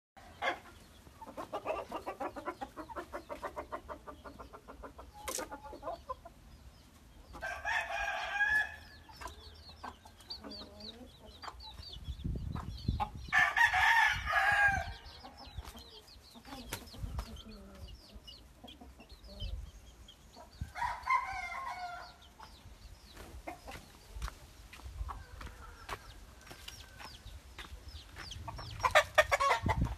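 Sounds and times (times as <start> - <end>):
chickens clucking: 0.2 - 29.9
rooster crowing: 13.3 - 15.0.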